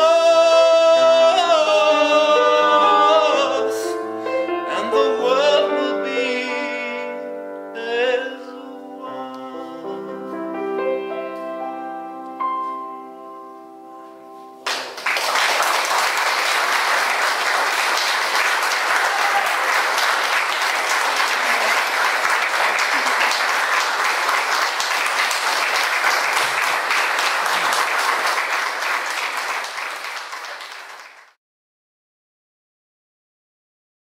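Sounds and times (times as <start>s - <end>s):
audience applauding: 14.6s - 31.4s.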